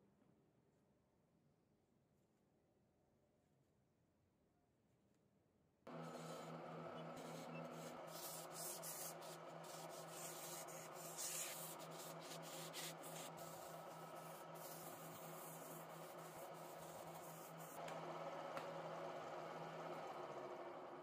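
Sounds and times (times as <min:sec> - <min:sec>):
sandpaper scraping spinning wood: 0:05.9 - 0:17.8
lathe motor hum: 0:05.9 - 0:21.0.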